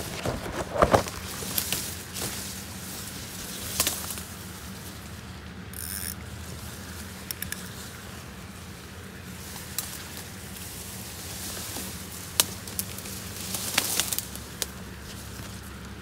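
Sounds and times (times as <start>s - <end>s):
fishing reel whirring: 5.7s - 6.2s.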